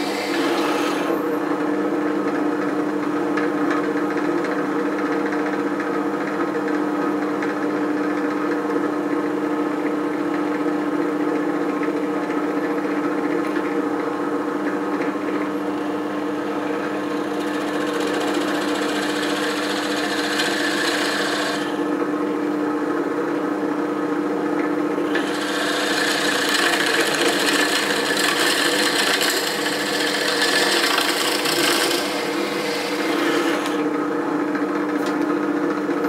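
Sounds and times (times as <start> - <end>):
drill bit boring into wood: 0.0 - 1.2, 17.1 - 21.8, 25.1 - 33.9
drill press motor humming: 0.0 - 1.8, 15.1 - 22.3, 25.0 - 36.0.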